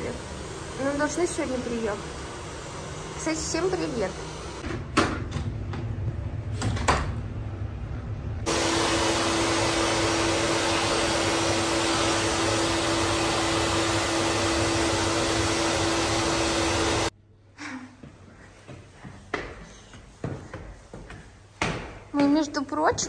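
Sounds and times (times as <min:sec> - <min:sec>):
grinder whirring: 0:00.0 - 0:04.6, 0:08.5 - 0:17.1.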